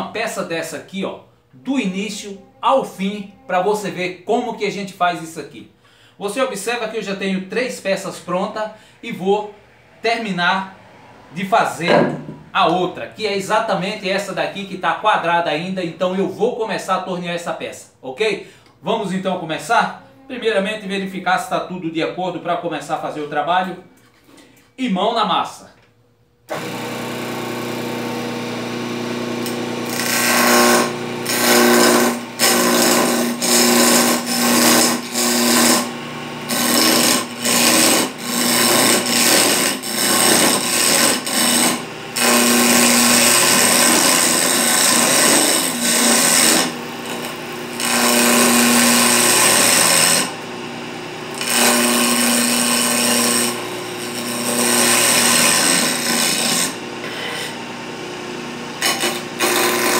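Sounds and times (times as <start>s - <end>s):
lathe motor hum: 26.5s - 59.9s
turning tool cutting wood: 26.5s - 59.9s.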